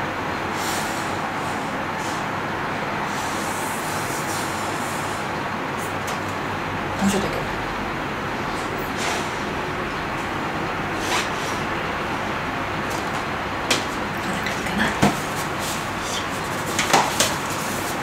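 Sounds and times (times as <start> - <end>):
steady hiss: 0.0 - 6.9.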